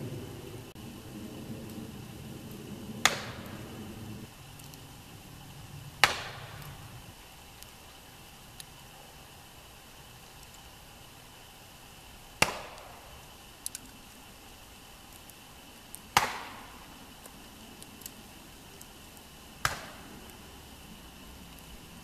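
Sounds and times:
axe chopping wood: 3.0 - 3.4, 6.0 - 6.4, 12.4 - 12.9, 16.2 - 16.6, 19.6 - 20.0.

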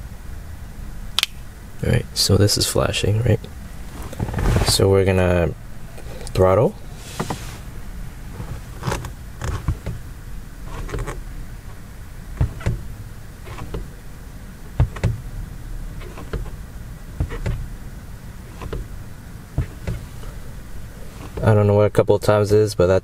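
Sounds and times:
low cabin hum: 0.0 - 23.0
accelerator pedal knocks and clicks: 8.8 - 10.0, 12.3 - 12.9, 14.7 - 15.3, 16.0 - 17.7, 18.6 - 18.9, 19.5 - 20.4.

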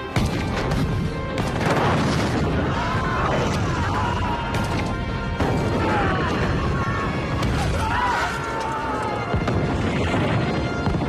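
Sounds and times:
field gun firing: 0.0 - 6.6
heavy explosions: 0.0 - 8.0, 9.2 - 11.0
film music: 0.0 - 11.0.

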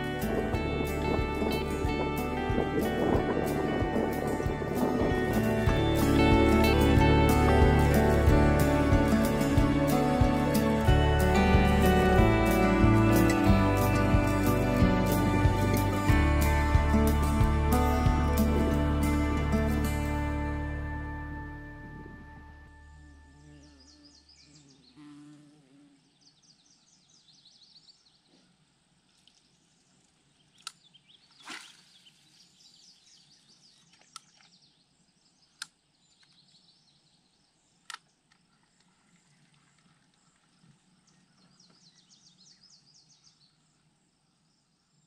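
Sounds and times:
background music: 0.0 - 23.4.

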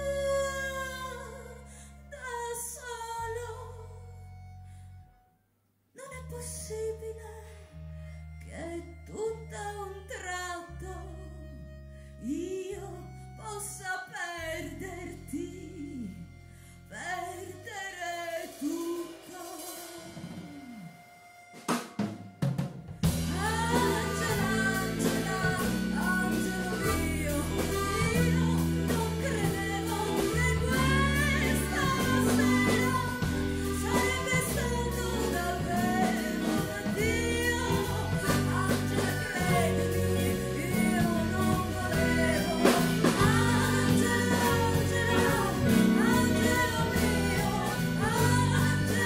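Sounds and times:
woman singing: 0.0 - 4.0, 6.0 - 7.5, 8.4 - 21.1, 23.0 - 49.0
drums: 17.1 - 49.0
live band playing: 17.2 - 49.0.

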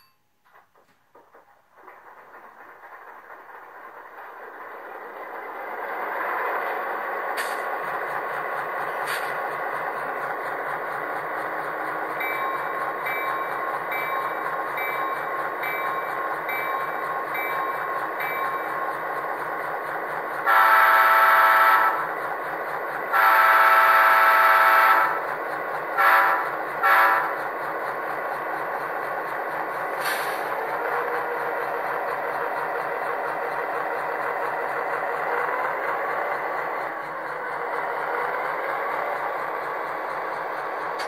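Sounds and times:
locomotive horn blasts: 20.4 - 22.1, 23.1 - 25.2, 26.0 - 27.4.

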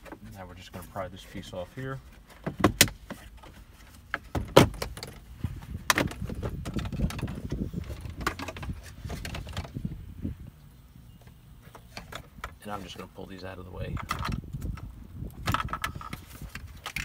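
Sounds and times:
small clicks and rustling: 13.9 - 17.0.

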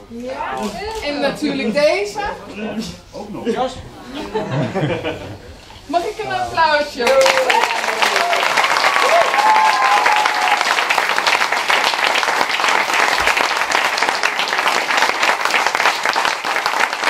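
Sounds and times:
crowd applauding: 7.0 - 17.0.

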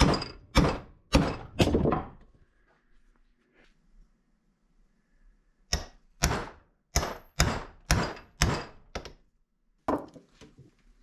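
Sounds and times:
hammer striking a metal punch: 0.0 - 1.6, 5.7 - 9.1.

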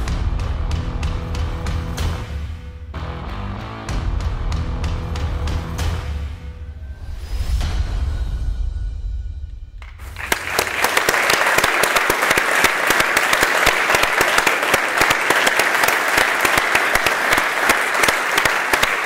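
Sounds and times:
music with deep bass: 0.0 - 8.3
audience applause: 9.9 - 19.0.

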